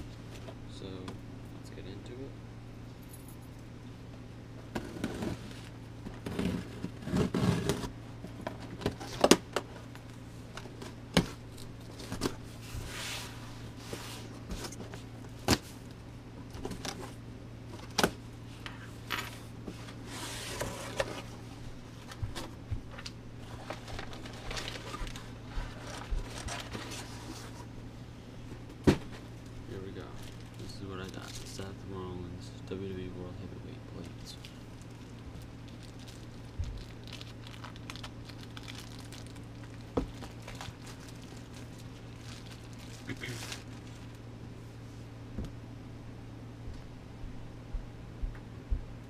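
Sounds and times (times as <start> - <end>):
cardboard scraping and tearing: 4.8 - 7.9
plastic crinkling: 23.4 - 27.2, 30.0 - 31.6, 34.1 - 44.2.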